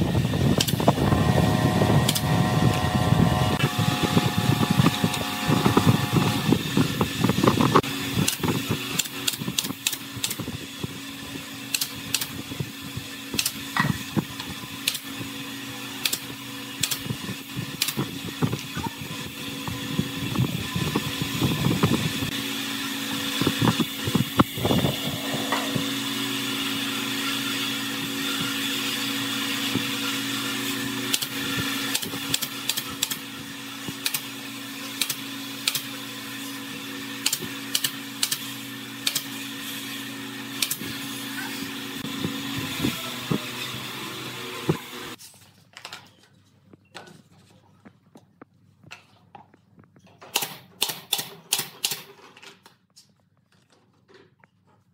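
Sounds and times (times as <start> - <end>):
air compressor motor humming: 0.0 - 16.3, 17.0 - 34.4, 38.6 - 45.2
tools and crates clicking and knocking: 37.2 - 39.3, 48.8 - 54.9.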